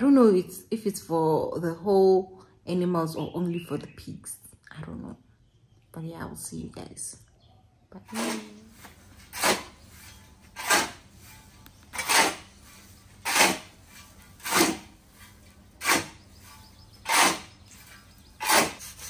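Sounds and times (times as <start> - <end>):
metal shovel scraping concrete: 8.1 - 19.0.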